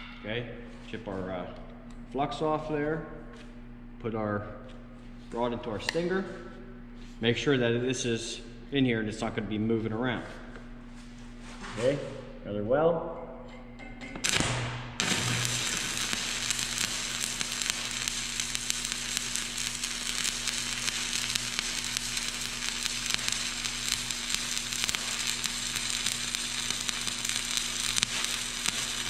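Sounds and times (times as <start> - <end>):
low electrical hum: 0.0 - 29.0
welding arc crackling: 14.2 - 29.0.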